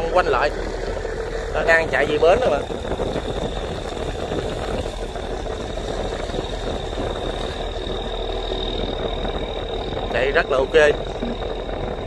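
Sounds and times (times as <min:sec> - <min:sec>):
boat diesel engine running: 0:00.0 - 0:12.0
thin high whine: 0:00.0 - 0:12.0.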